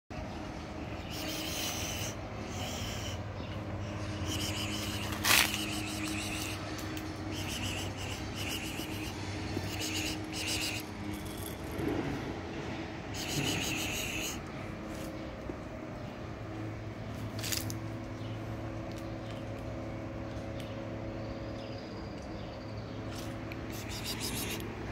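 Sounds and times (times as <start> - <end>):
steady low hum: 0.1 - 24.9
high chirping: 1.0 - 11.4, 13.2 - 14.4, 23.1 - 24.6.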